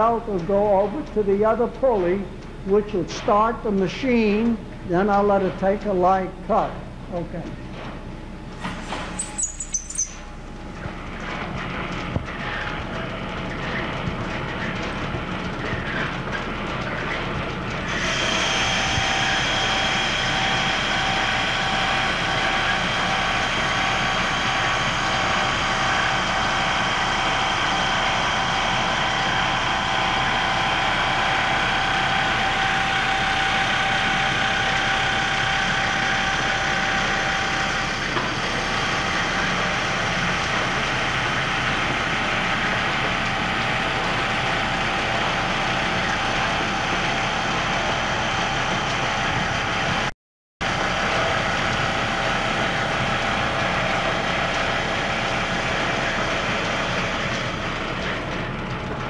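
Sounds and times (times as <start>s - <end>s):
grinding machine running: 6.8s - 59.0s
grinding wheel cutting steel: 17.8s - 49.2s.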